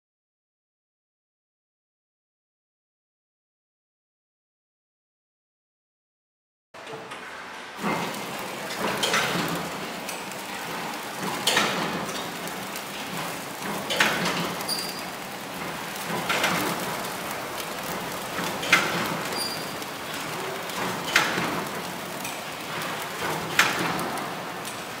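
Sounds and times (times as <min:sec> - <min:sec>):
wrapping machine rattling and hissing: 0:07.1 - 0:25.0.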